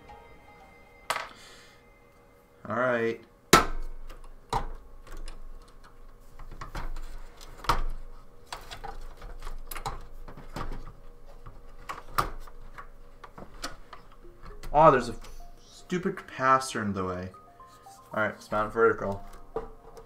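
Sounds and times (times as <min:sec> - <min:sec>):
clicks and knocks of computer parts: 0:03.6 - 0:14.8.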